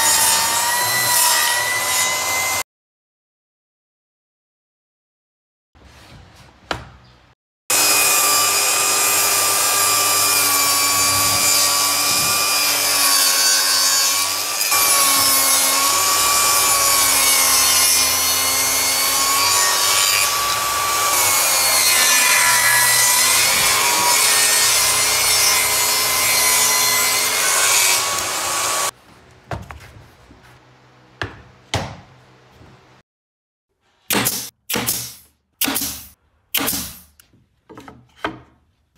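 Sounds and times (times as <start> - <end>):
table saw cutting wood: 0.0 - 2.6, 7.7 - 28.9.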